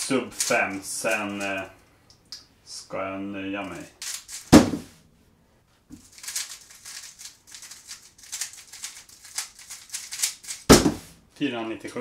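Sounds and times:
plastic puzzle cube clicking: 6.1 - 10.7.

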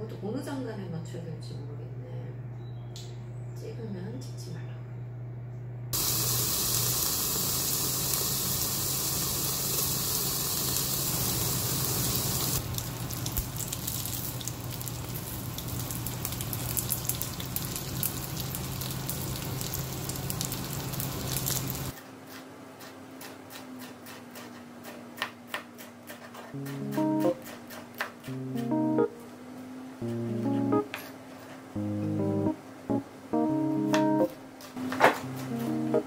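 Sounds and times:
dumplings sizzling in skillet: 6.0 - 22.0.

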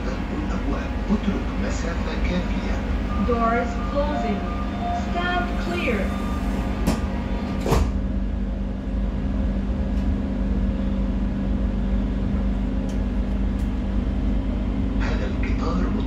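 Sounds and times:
train interior hum and rumble: 0.0 - 16.0
sliding doors shutting clunk: 6.7 - 8.0.

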